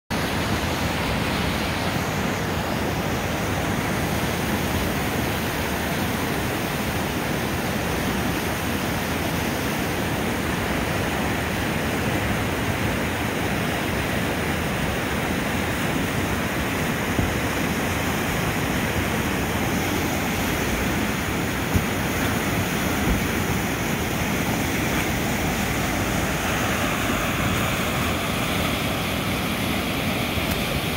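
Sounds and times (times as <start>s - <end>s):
water rushing over rocks: 0.1s - 30.9s.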